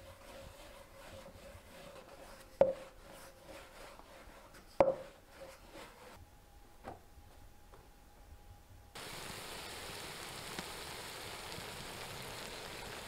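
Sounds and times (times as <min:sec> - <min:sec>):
rolling pin rubbing dough: 0:00.0 - 0:06.2.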